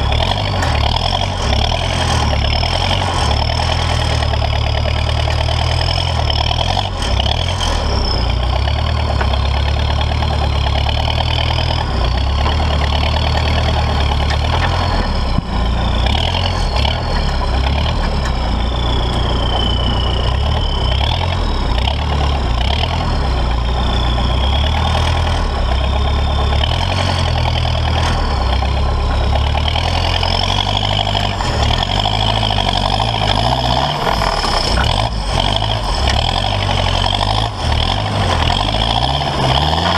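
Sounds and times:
diesel engine drone: 0.0 - 39.9
high wavering whistle: 18.6 - 21.3.

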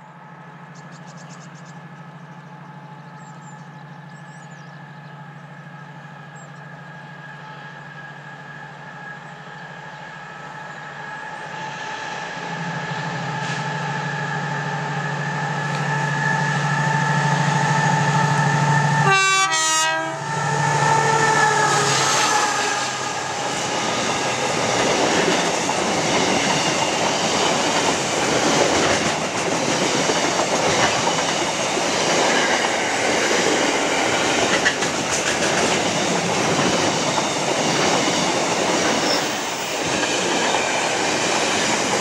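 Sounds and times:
diesel locomotive engine drone: 0.0 - 42.0
train horn blast: 15.5 - 23.6.

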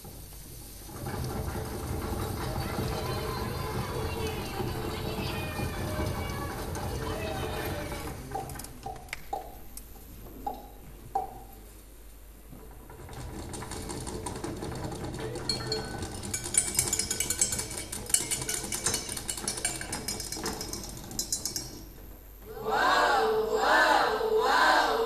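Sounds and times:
kitchen utensils rattling and clinking: 0.9 - 8.8, 12.9 - 22.0.

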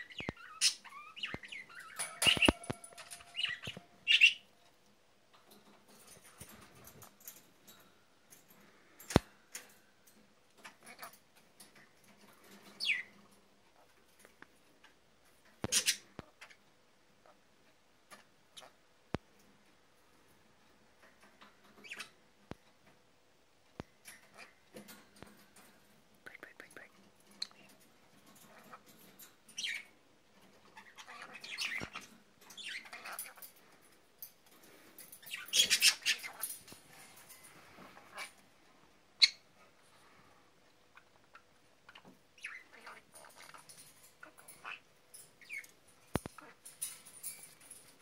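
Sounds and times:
parrot chirping and squeaking: 0.0 - 4.5, 10.6 - 11.1, 12.6 - 13.1, 15.6 - 16.6, 21.8 - 22.2, 24.1 - 24.8, 28.4 - 29.9, 30.6 - 33.6, 34.7 - 37.2, 37.9 - 38.4, 39.2 - 39.5, 40.9 - 47.9
clicks on metal cage bars: 1.3 - 3.9, 23.7 - 29.7, 31.7 - 37.6, 43.2 - 48.0.

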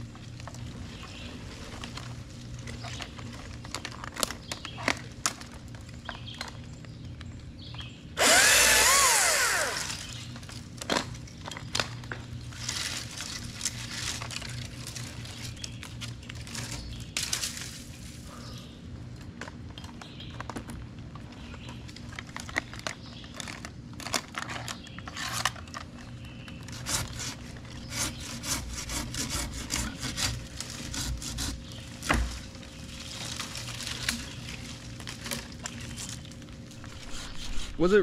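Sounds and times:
hand saw cutting wood: 8.2 - 10.1, 26.7 - 31.6, 36.9 - 38.0.

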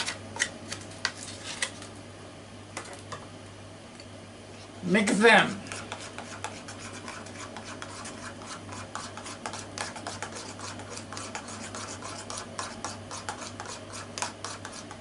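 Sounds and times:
metal spoon stirring in a bowl: 5.7 - 15.0.

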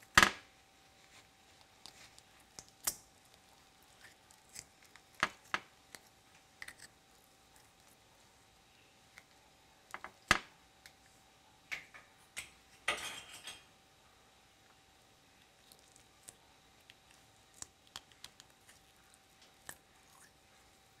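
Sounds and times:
crackly rustle: 0.6 - 10.1.

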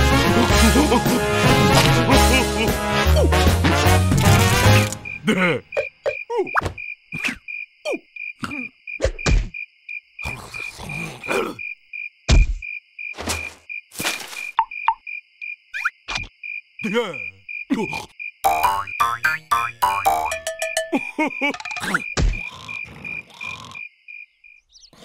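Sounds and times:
background music: 0.0 - 5.3
cricket chirping: 4.6 - 25.0
cartoon grunts and squeaks: 10.3 - 11.7.

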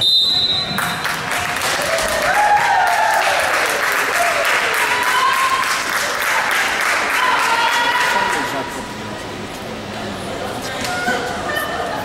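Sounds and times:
crowd clapping and cheering: 0.6 - 8.6
people shouting: 7.1 - 8.3.

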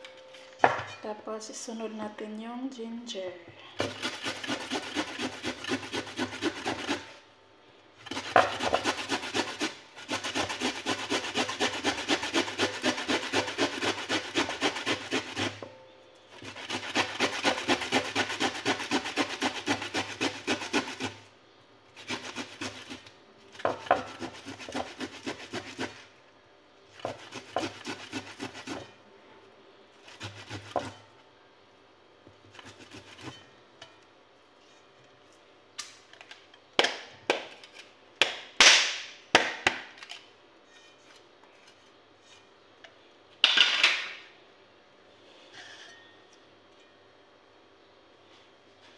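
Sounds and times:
ginger rasping on a grater: 3.8 - 7.2, 8.0 - 15.6, 16.4 - 21.3, 21.9 - 26.1, 26.9 - 28.9, 30.0 - 31.0, 32.5 - 33.4.

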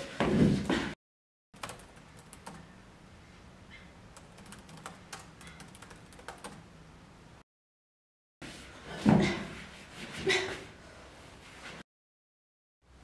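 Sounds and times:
laptop keyboard typing: 1.6 - 2.6, 4.2 - 6.6.

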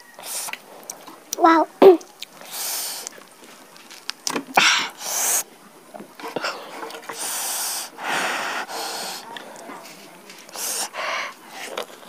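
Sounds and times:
wet chewing clicks: 0.2 - 5.1
breathy rushes: 6.3 - 9.4, 10.5 - 11.8.

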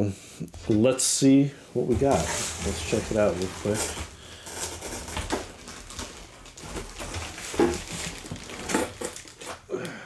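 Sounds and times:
cardboard scraping and rustling: 1.8 - 9.6.

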